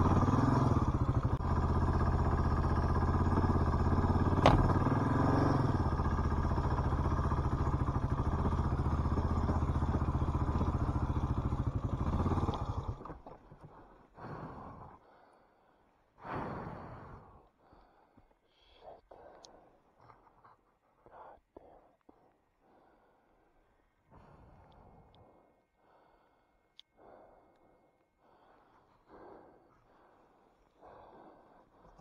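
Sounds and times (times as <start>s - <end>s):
motorcycle engine thumping: 0.0s - 13.5s.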